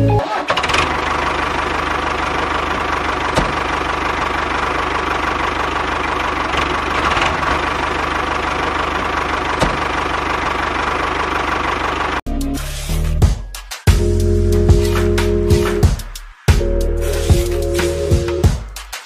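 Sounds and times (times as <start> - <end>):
tractor engine idling: 0.0 - 12.3.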